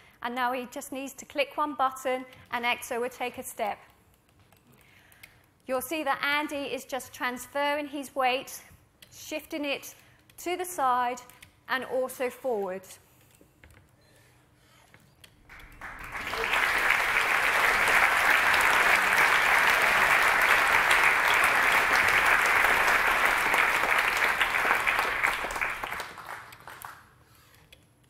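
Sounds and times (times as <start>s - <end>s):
audience applauding: 15.5s - 27.1s.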